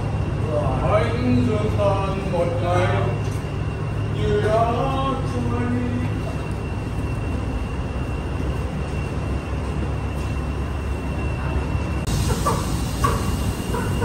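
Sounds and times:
coach diesel engine idling: 12.0s - 14.0s.

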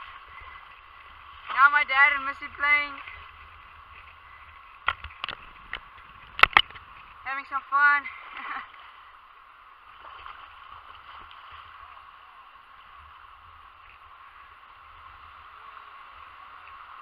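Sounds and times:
wind rumble on microphone: 0.0s - 7.5s
shallow water lapping: 0.0s - 17.0s.

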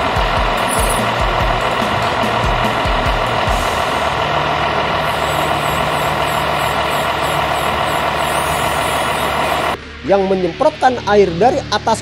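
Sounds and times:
diesel truck engine idling: 0.0s - 9.8s.

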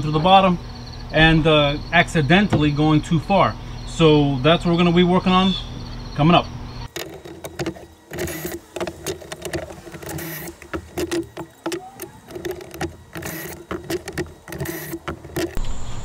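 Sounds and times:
drill motor bursts: 5.8s - 15.9s.

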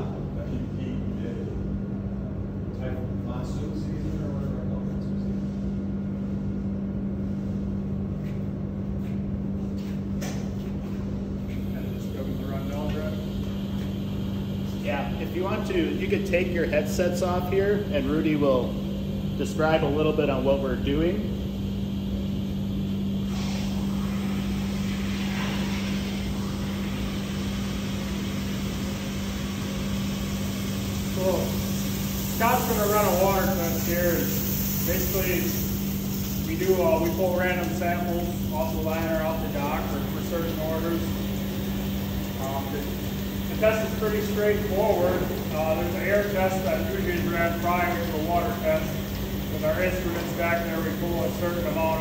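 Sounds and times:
industrial machinery drone: 9.4s - 52.0s
rushing air hiss: 21.8s - 52.0s.

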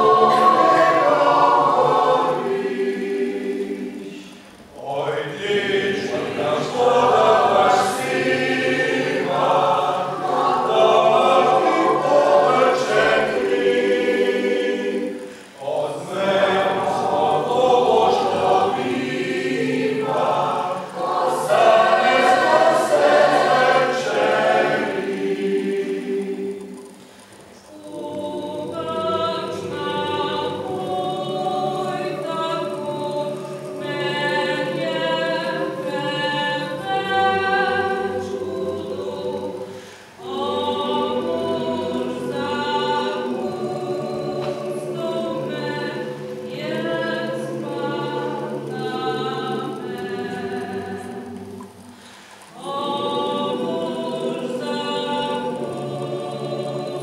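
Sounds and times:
mixed choir singing a cappella: 0.0s - 57.0s.

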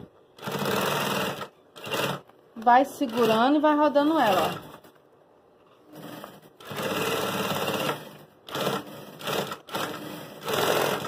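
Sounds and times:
industrial sewing machine stitching: 0.4s - 2.2s, 3.0s - 4.8s, 5.9s - 11.0s.

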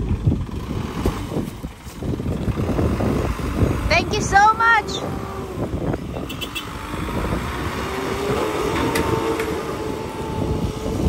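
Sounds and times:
fire truck engine passing: 0.0s - 11.0s.

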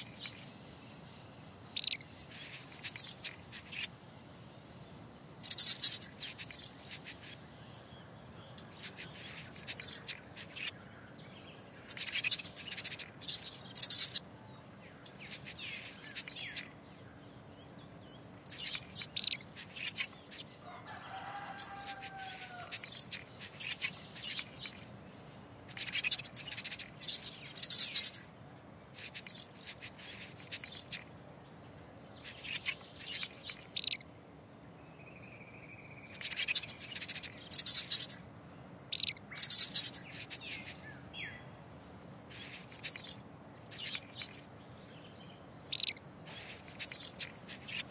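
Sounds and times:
mouse squeaking: 0.0s - 0.5s, 1.8s - 3.9s, 5.4s - 7.4s, 8.6s - 10.8s, 11.9s - 14.2s, 15.0s - 16.7s, 18.5s - 20.5s, 21.4s - 24.9s, 25.7s - 28.2s, 29.0s - 31.1s, 32.2s - 34.0s, 36.1s - 38.2s, 38.9s - 40.8s, 42.3s - 44.4s, 45.7s - 47.9s
faint bird calls: 1.6s - 4.0s, 5.3s - 34.1s, 35.0s - 38.3s, 38.9s - 47.9s.

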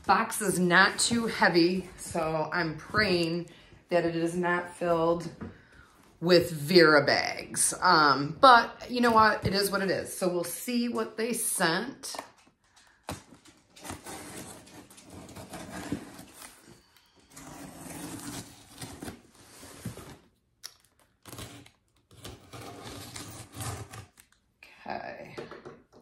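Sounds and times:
cardboard box rustling and scraping: 13.8s - 20.3s.

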